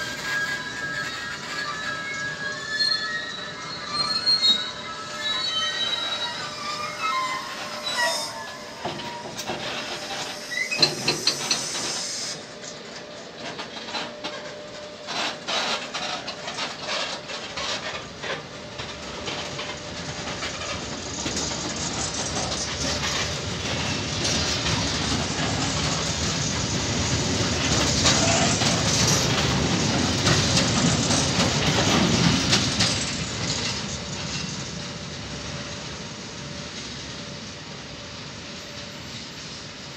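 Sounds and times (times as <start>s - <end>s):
high wheel squeal: 0.0s - 12.8s, 20.4s - 34.5s
train rumble and hiss: 0.0s - 39.9s
train wheels clattering over rail joints: 5.9s - 39.9s.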